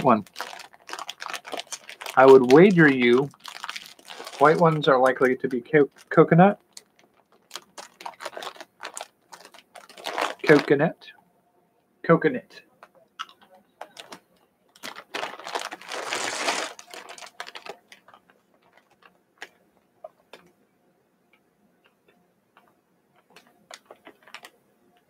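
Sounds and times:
chewing sticky crunches: 0:00.3 - 0:10.6.

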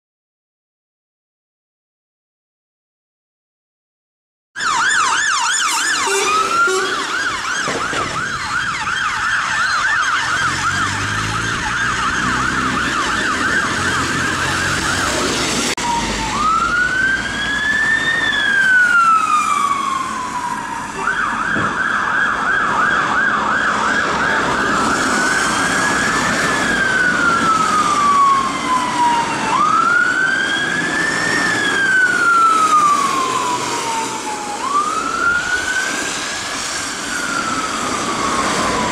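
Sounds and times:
fire engine siren yelping: 0:04.6 - 0:38.9
sirens wailing and yelping: 0:04.6 - 0:38.9
diesel engine passing: 0:05.7 - 0:20.9.

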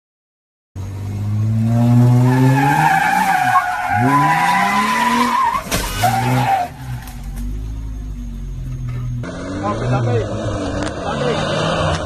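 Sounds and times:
engine revving hard: 0:01.1 - 0:05.3, 0:09.2 - 0:12.0
tyres squealing on pavement: 0:02.1 - 0:11.6.

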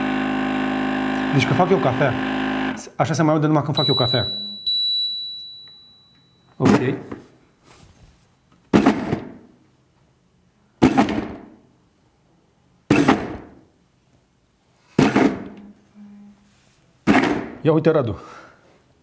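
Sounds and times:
blender pulsing: 0:00.0 - 0:02.8.

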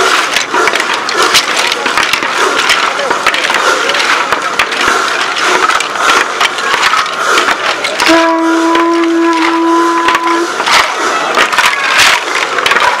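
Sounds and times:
clattering and rattling: 0:00.0 - 0:13.0
horn note: 0:08.0 - 0:10.6.

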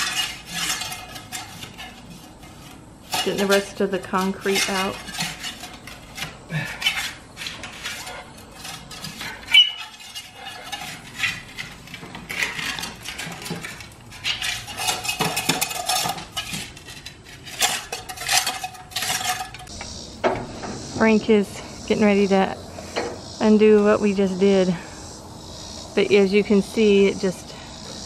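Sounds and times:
metal tool scraping concrete: 0:00.0 - 0:19.8.

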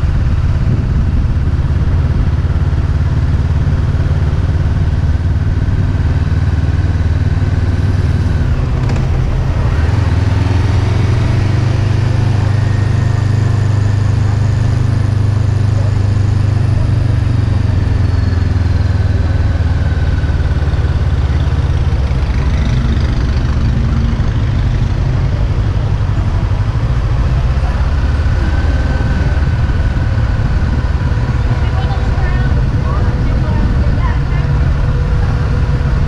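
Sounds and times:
motorcycle engine running at low revs: 0:00.0 - 0:36.0.

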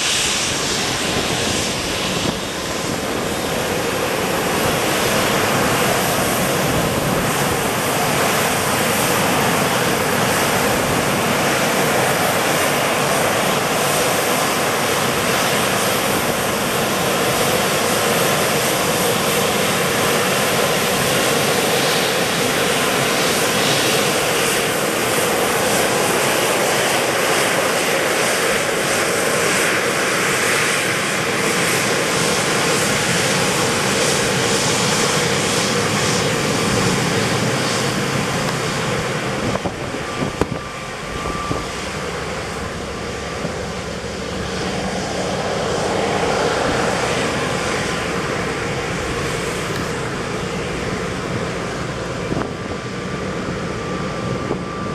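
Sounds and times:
jet engines running: 0:00.0 - 0:54.9.

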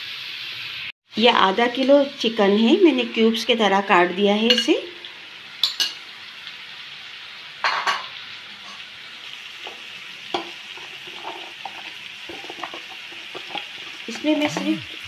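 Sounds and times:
chicken sizzling in a pan: 0:00.0 - 0:15.0.

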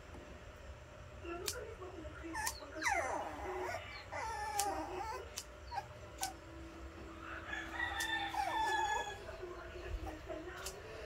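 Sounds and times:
nail clippers clicking: 0:04.5 - 0:05.5
rooster crowing: 0:07.2 - 0:09.4.

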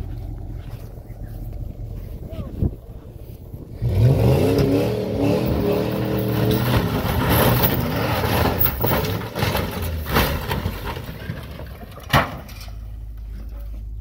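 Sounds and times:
metal scraping and crunching: 0:02.9 - 0:13.9
pickup engine revving hard: 0:03.7 - 0:08.9.

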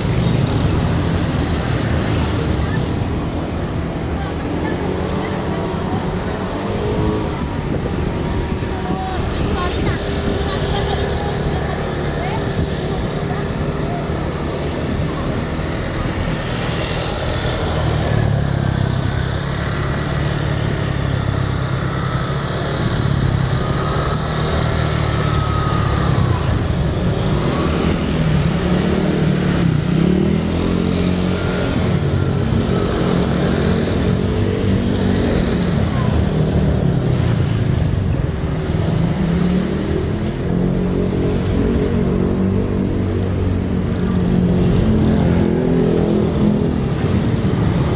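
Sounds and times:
motorcycle and car engines in traffic: 0:00.0 - 0:47.9.

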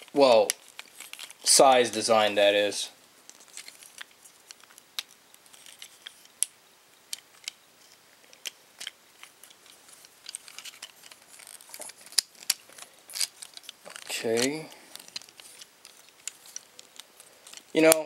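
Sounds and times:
plastic toy parts clicking: 0:03.3 - 0:06.5, 0:07.1 - 0:07.6, 0:08.2 - 0:18.0.

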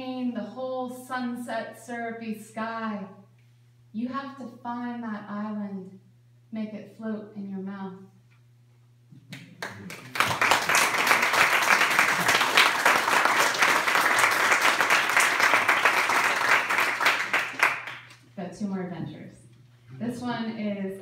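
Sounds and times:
audience applauding: 0:09.4 - 0:18.2.

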